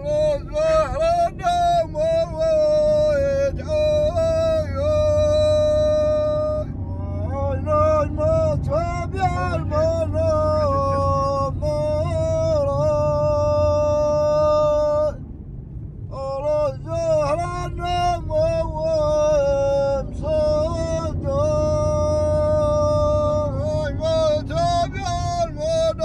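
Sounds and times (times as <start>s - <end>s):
man singing long notes: 0.0s - 15.2s
car driving on sand: 0.0s - 26.0s.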